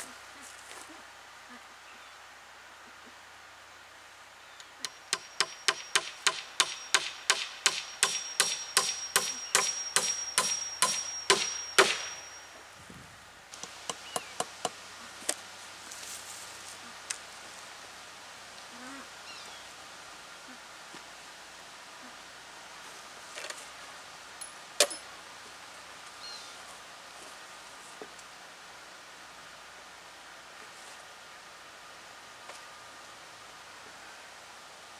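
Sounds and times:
high metallic ring: 4.9 - 12.7
hammer striking nail into wood: 5.1 - 12.2.

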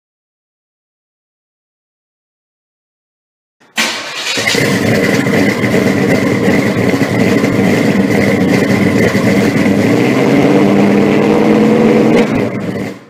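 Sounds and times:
car engine running: 3.8 - 13.0.

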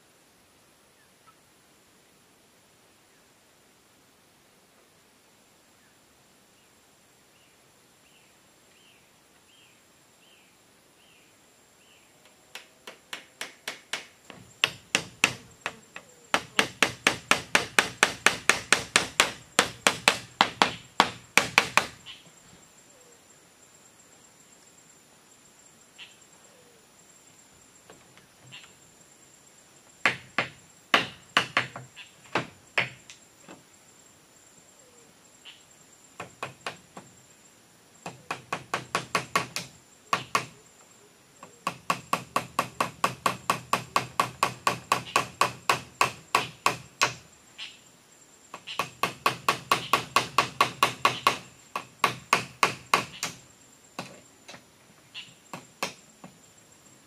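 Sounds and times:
hammer striking bamboo and wood: 12.5 - 22.0, 30.0 - 33.0, 38.0 - 40.5, 41.6 - 47.2, 48.6 - 53.4.

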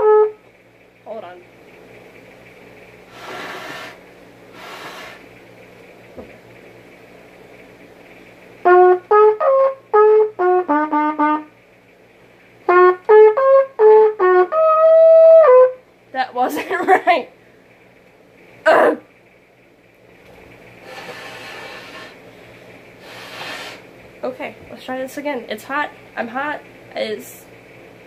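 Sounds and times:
solo trumpet: 0.0 - 0.4, 8.6 - 11.6, 12.7 - 15.8
rushes of breath: 3.1 - 5.3, 20.8 - 23.9.

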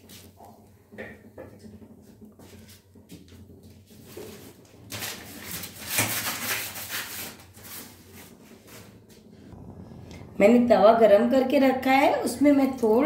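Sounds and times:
plastic sheet crinkling: 4.3 - 8.9.

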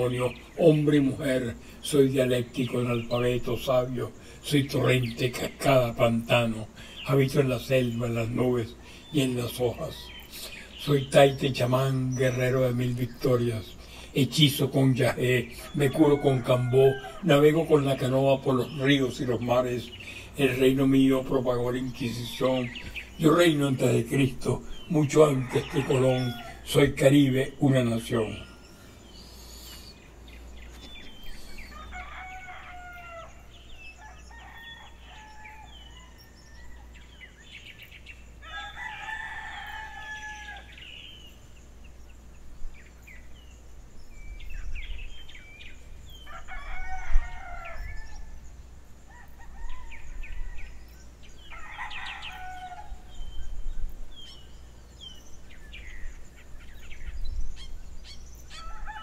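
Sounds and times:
small birds chirping: 0.0 - 59.0
rooster crowing: 15.5 - 17.8, 25.1 - 27.0, 31.4 - 37.2, 38.4 - 41.0, 46.2 - 48.5, 49.1 - 53.2, 58.5 - 59.0.

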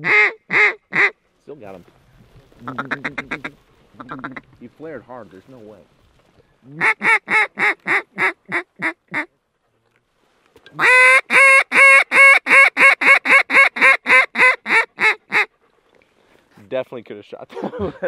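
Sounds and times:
waterfowl call blown by hand: 0.0 - 1.2, 2.6 - 4.4, 6.7 - 9.3, 10.8 - 15.5.

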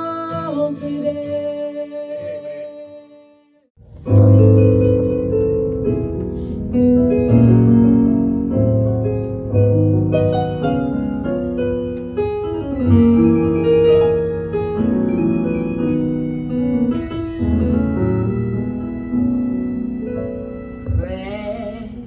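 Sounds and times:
slow piano chords: 3.8 - 22.0.

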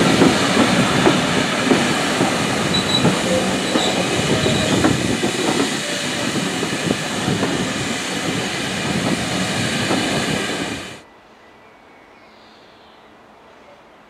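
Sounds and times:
steam hissing: 0.0 - 11.0
wheels clacking over rail joints: 0.0 - 11.0.

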